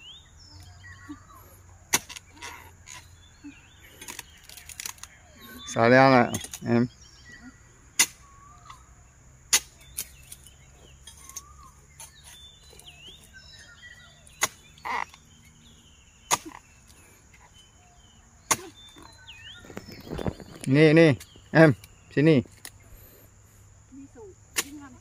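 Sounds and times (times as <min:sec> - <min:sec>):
high insect hum: 0:00.0 - 0:25.0
faint whistling chirps: 0:04.4 - 0:09.0, 0:09.8 - 0:14.3.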